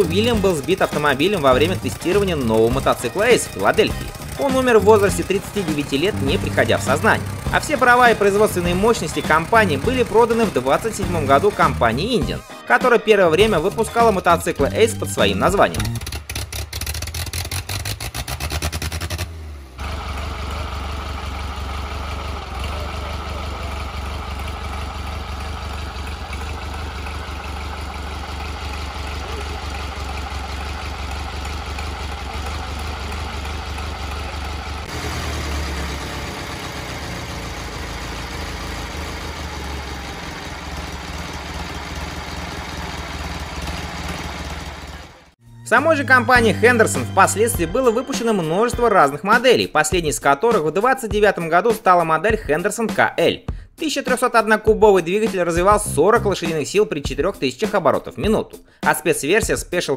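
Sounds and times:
motorcycle engine idling: 0.0 - 12.4, 13.4 - 18.8, 19.8 - 45.4.

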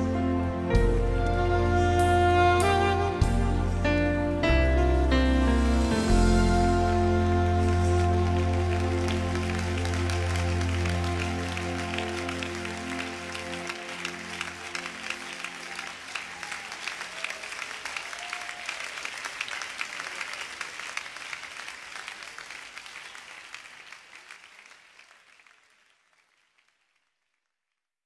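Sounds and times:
held music notes: 0.0 - 16.3
congregation applauding: 6.8 - 27.6.

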